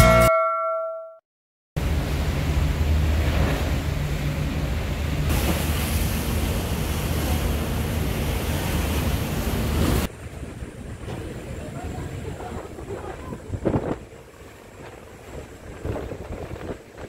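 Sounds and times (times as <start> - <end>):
choppy seawater churning: 1.8 - 17.0
ship engine rumble: 1.8 - 17.0
wind buffeting microphone: 9.9 - 17.0.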